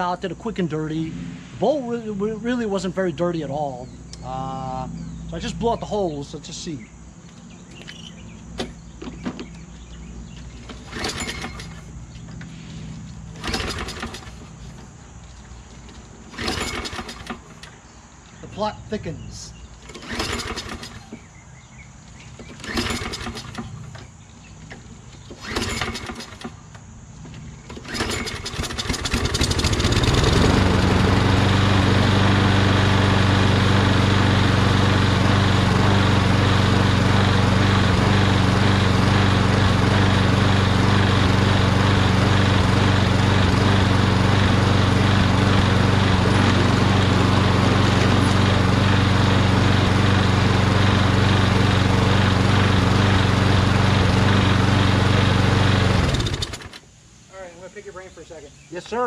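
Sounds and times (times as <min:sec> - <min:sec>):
lawn mower engine running: 0:00.0 - 0:57.1
starter rope pulls: 0:10.6 - 0:11.9, 0:13.3 - 0:14.6, 0:15.8 - 0:17.7, 0:19.8 - 0:21.3, 0:22.3 - 0:24.1, 0:24.7 - 0:26.6, 0:27.6 - 0:32.1, 0:33.5 - 0:56.8.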